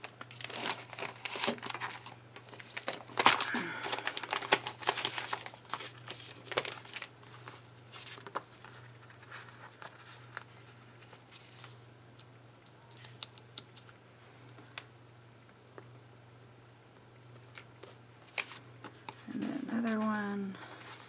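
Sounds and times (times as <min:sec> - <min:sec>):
paper and sticker sheets rustling: 0:00.3 - 0:11.8, 0:17.8 - 0:21.0.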